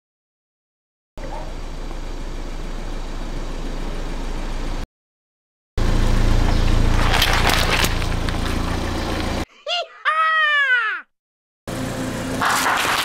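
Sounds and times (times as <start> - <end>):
car engine running: 1.2 - 4.8, 5.8 - 9.4.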